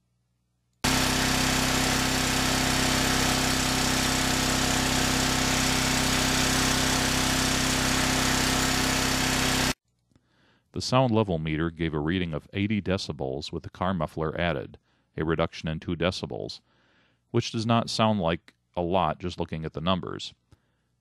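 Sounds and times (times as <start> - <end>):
generator engine valve clatter: 0.8 - 9.8
generator whir and whine: 0.8 - 9.8.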